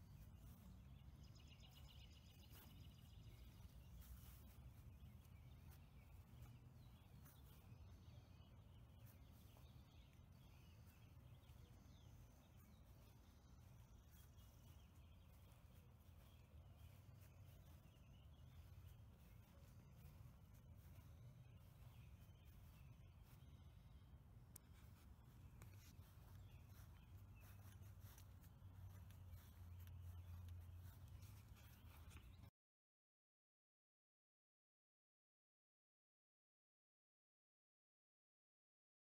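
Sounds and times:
faint bird chirps: 0.0s - 32.5s.

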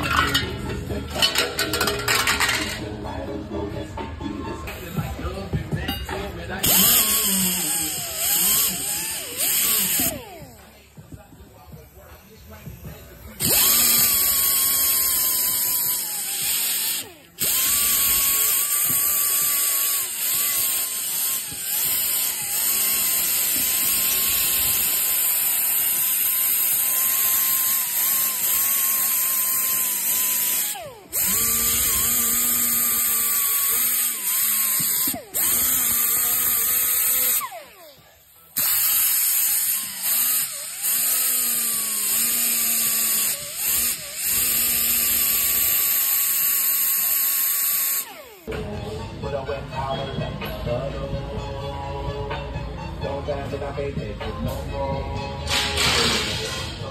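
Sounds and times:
die grinder whining: 4.7s - 49.9s, 55.4s - 56.9s.

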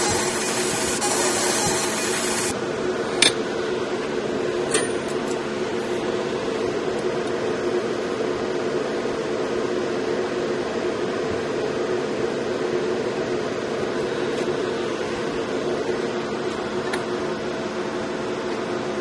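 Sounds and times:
laser engraving hiss: 0.0s - 2.5s
machine fan hum: 0.0s - 19.0s.

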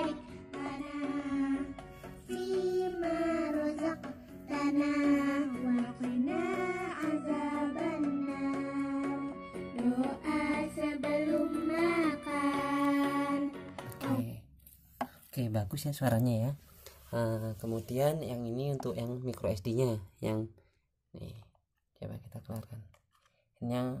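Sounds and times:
child singing: 0.0s - 14.2s
musical backing: 0.0s - 14.4s.

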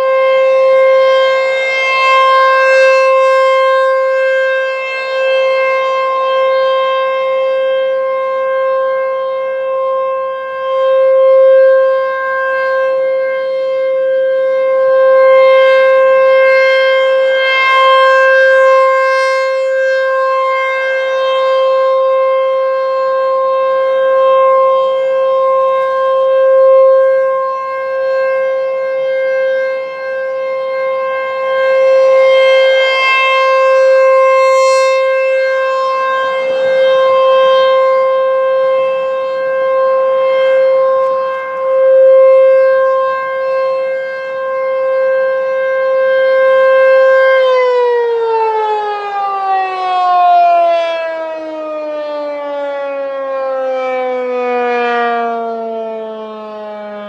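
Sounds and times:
rotating warning siren: 0.0s - 57.0s.

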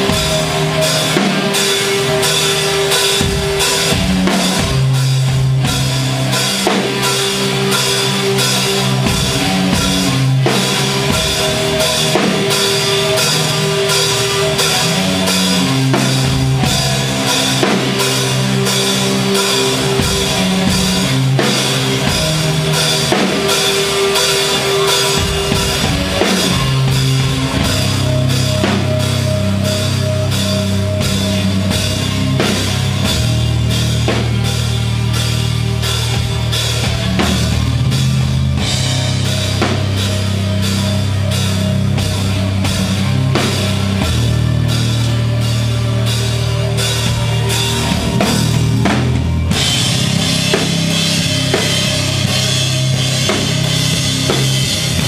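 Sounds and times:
drum kit beat: 0.0s - 55.0s
live rock band playing: 0.0s - 55.0s.

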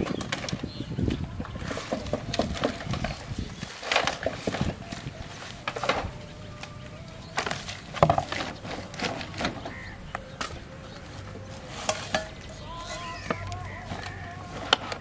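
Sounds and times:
plastic sack rustling: 0.0s - 6.6s.

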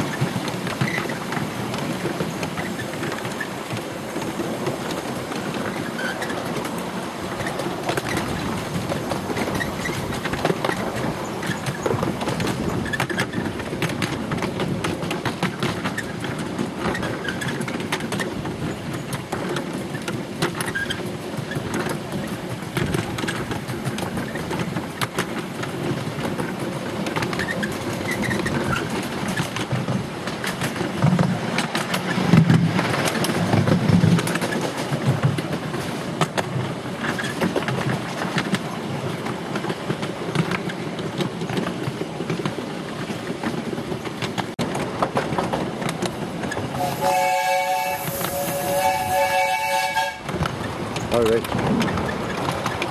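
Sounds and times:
miniature train rattling on track: 0.0s - 52.9s
train whistle chord: 46.8s - 50.3s.

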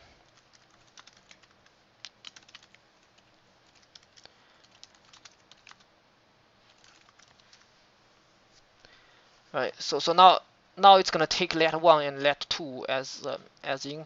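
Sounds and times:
faint keyboard typing: 0.2s - 5.9s, 6.6s - 7.7s.

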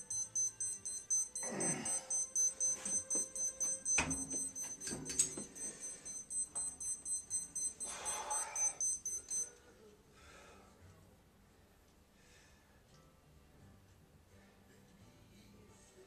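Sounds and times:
rapid high-pitched electronic beeping: 0.0s - 9.4s.

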